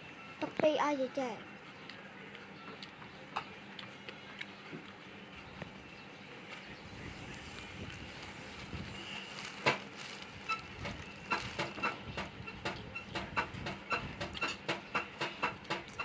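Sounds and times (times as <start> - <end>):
person chewing with wet smacking: 1.8 - 5.7.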